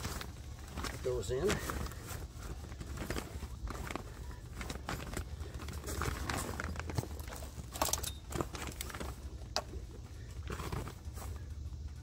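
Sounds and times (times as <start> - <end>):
plastic bag rustling: 0.0 - 12.0
steady low hum: 0.0 - 12.0.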